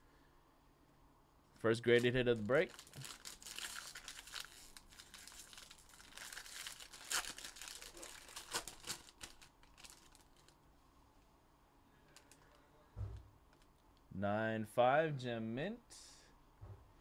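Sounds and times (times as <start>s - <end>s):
foil wrapper crinkling: 1.9s - 10.6s.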